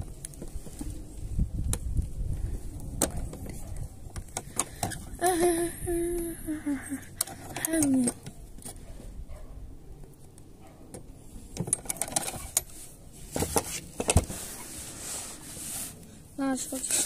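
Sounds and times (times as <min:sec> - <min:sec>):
soft rustling hiss: 0:12.5 - 0:17.0.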